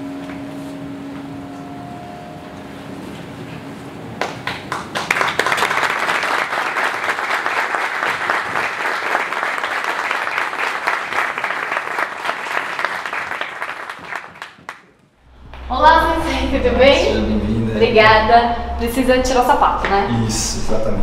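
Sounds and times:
audience applauding: 4.2 - 15.0.

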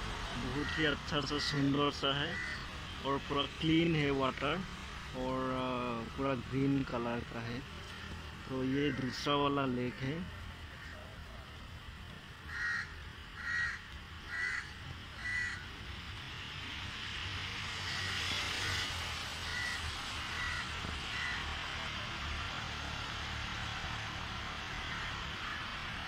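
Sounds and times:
steady outdoor hiss: 0.0 - 26.0
crow cawing: 0.5 - 1.5, 2.2 - 2.7, 8.6 - 9.2, 10.7 - 11.1, 12.5 - 15.7, 17.8 - 21.6, 24.6 - 26.0.

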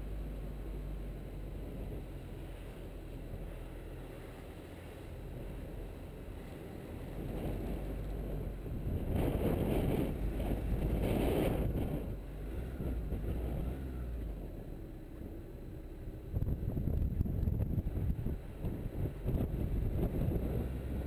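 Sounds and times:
car driving low rumble: 0.0 - 21.0
wind rushing over microphone: 1.3 - 4.0, 5.0 - 14.5, 16.3 - 21.0.

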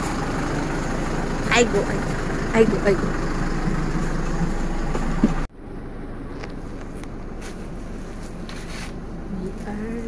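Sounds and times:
bus cabin noise: 0.0 - 5.5
bus engine rumble: 0.0 - 10.0.

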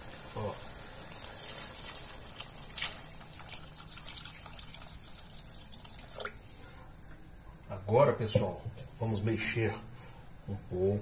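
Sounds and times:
water pouring into sauce: 0.0 - 6.5.

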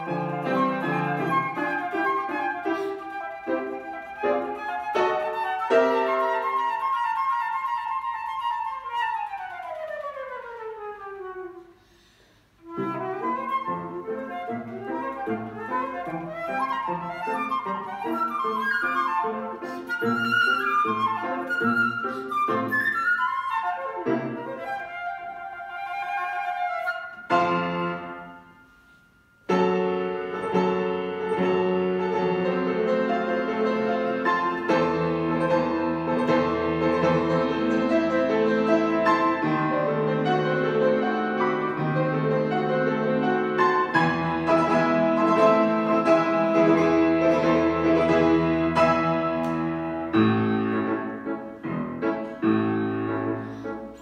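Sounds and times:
flute playing fast runs: 0.0 - 11.8, 12.7 - 27.8
grand piano playing: 0.0 - 11.8, 12.6 - 54.0.

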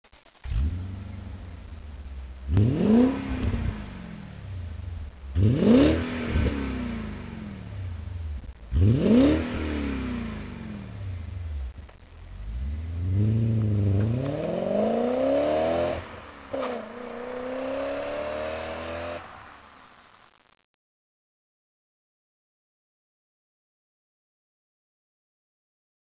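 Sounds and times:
car engine revving and accelerating: 0.5 - 19.7.

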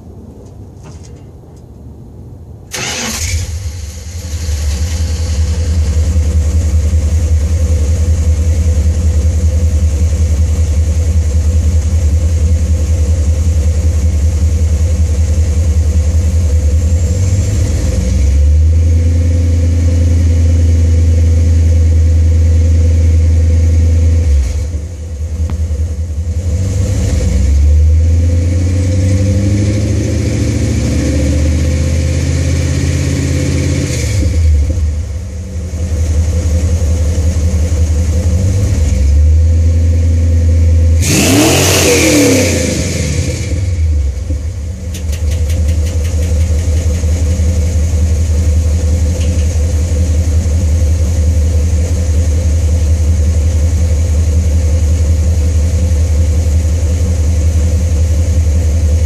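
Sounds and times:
engine starting and idling: 2.7 - 9.0, 41.9 - 52.5.

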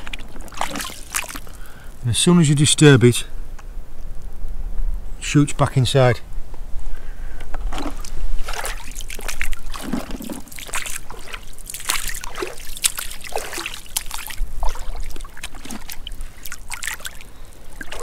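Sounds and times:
boots wading through shallow water: 0.0 - 2.0, 7.7 - 18.0.

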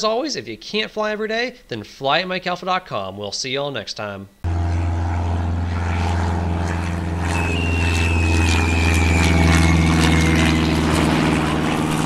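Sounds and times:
propeller airplane engine droning: 4.4 - 12.0
high falling whine: 4.5 - 12.0.

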